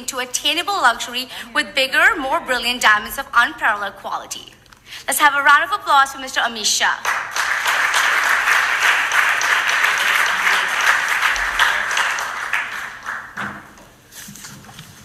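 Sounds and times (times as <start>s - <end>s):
audience applauding: 7.0s - 13.8s.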